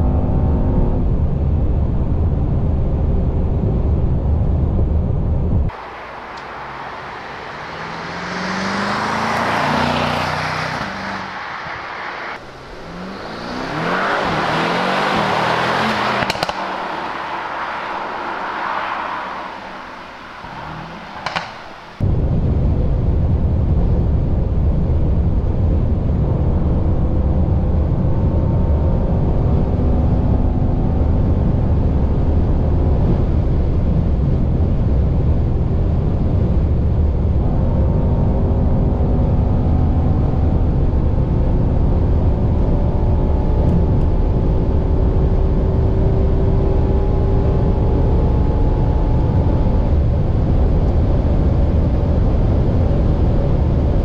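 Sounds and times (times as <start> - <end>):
wind and tyre roar: 0.0 - 54.0
car engine pulling hard: 5.7 - 22.0, 26.6 - 54.0
gear upshift: 5.7 - 22.0.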